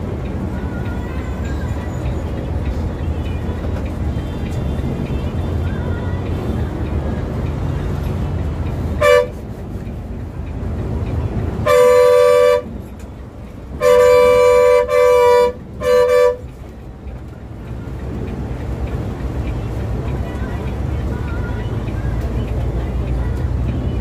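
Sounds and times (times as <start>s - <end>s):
bus engine and tyres rumbling: 0.0s - 24.0s
bus horn honking: 8.8s - 9.6s, 11.5s - 12.9s, 13.6s - 16.7s.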